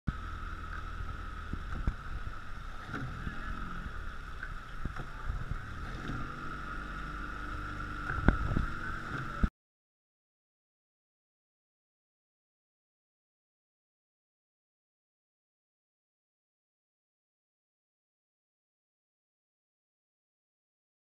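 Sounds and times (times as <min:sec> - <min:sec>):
wind buffeting camera: 0:00.1 - 0:06.6, 0:08.0 - 0:09.5
steady high hum: 0:00.1 - 0:09.5
water rushing along hull: 0:00.1 - 0:09.5.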